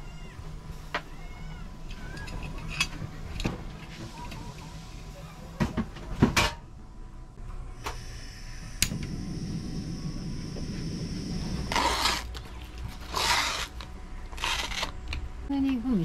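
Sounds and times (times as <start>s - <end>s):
burner flame running: 7.4s - 15.4s
gas hissing: 7.7s - 15.0s.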